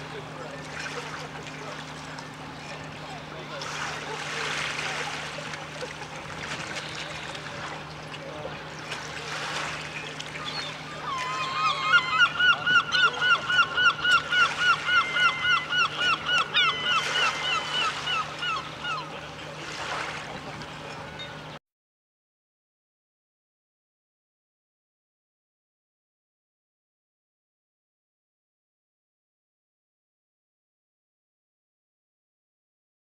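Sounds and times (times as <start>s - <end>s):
bird calling loudly: 10.4s - 19.2s.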